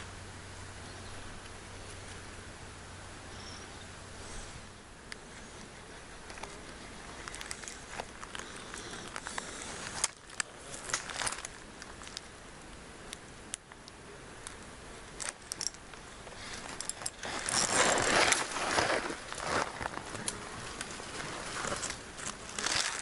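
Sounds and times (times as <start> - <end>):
rustling among branches: 0.0 - 13.0, 14.3 - 23.0
fishing gear clicking: 15.2 - 19.6.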